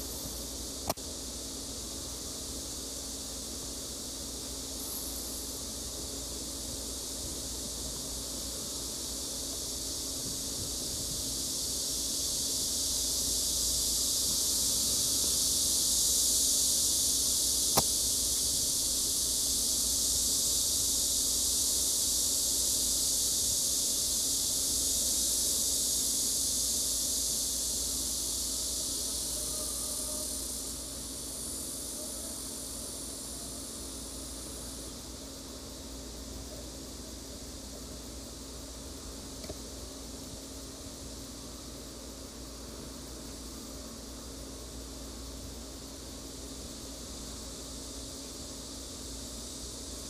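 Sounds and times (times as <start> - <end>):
high hiss: 0.0 - 50.0
sharp click: 0.8 - 1.0, 17.7 - 18.0.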